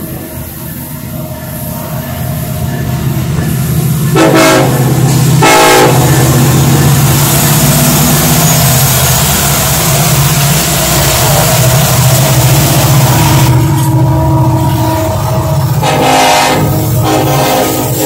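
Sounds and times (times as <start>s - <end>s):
diesel locomotive engines rumbling: 0.0s - 18.0s
locomotive horn blasts: 4.1s - 6.3s, 14.5s - 18.0s.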